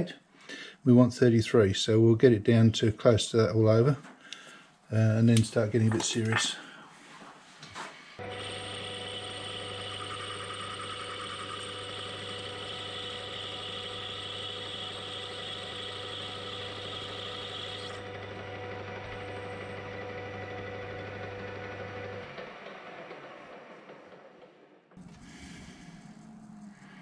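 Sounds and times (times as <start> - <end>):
cutting tool on brass: 8.2 - 18.0
lathe motor hum: 8.2 - 27.0.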